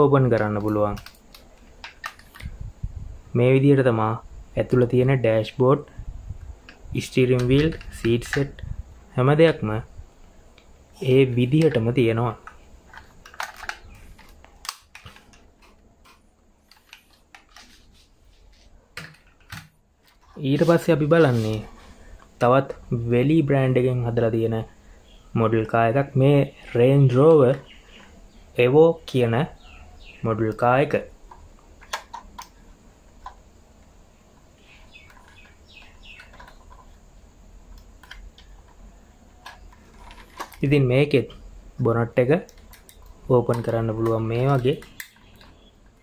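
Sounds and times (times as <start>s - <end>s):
faint bird chirping: 20.1s - 46.0s.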